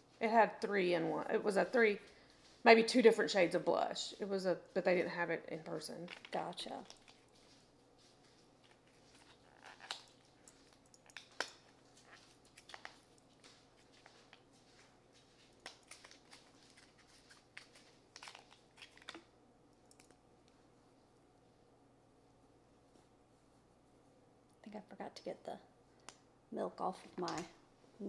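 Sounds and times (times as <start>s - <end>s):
small objects clicking and rustling: 6.0s - 7.6s, 8.6s - 14.4s, 15.2s - 19.3s.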